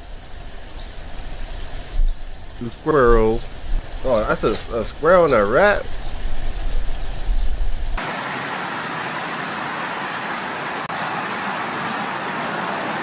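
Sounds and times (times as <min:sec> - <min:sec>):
water flowing in a shallow river: 0:08.0 - 0:13.0.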